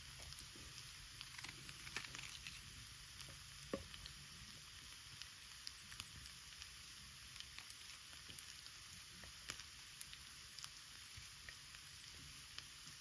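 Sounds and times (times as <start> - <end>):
campfire pops and crackles: 0.0 - 6.7
food sizzling in frying pan: 0.0 - 13.0.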